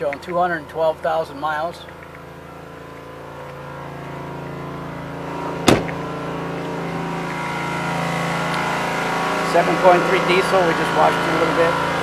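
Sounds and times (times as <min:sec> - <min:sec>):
engine idling: 0:00.0 - 0:12.0
truck door slamming: 0:05.6 - 0:06.1.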